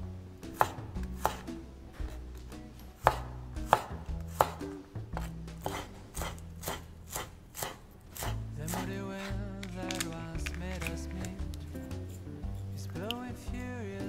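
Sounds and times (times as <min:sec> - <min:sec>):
knife chopping on wooden board: 0:00.4 - 0:02.2, 0:03.0 - 0:08.9.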